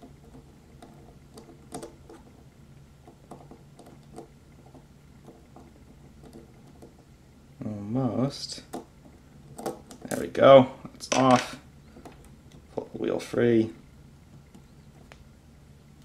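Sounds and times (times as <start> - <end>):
low steady hum: 0.0 - 16.0
fingers handling model: 8.6 - 10.3.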